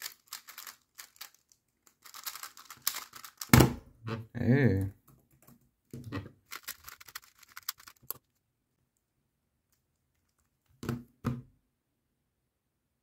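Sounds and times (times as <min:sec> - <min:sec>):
plastic puzzle cube clicking: 0:00.0 - 0:03.5, 0:06.5 - 0:08.2.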